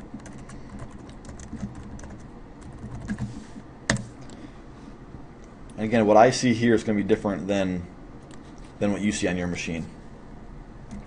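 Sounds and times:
keyboard typing: 0.0s - 3.3s.

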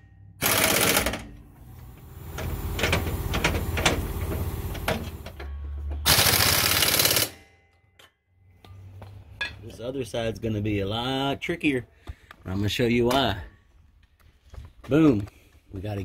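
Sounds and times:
impact wrench running: 0.4s - 5.4s, 6.0s - 7.4s.

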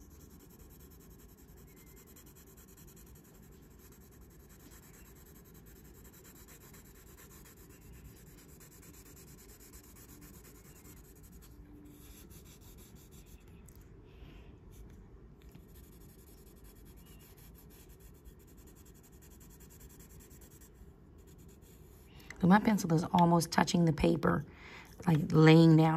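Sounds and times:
pencil shading on paper: 0.0s - 13.5s, 15.6s - 22.1s.

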